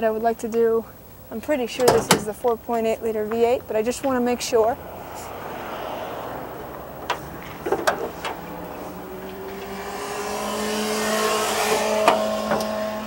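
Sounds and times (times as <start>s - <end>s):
motorcycle engine accelerating: 4.2s - 13.0s.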